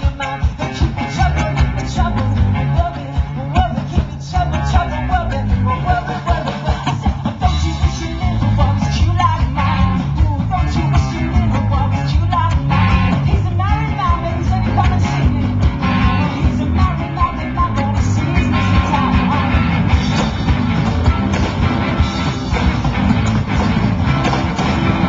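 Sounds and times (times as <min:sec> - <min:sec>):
bass guitar: 0:00.0 - 0:25.0
drum kit: 0:00.0 - 0:25.0
electric guitar: 0:00.0 - 0:25.0
woman singing: 0:07.4 - 0:19.6.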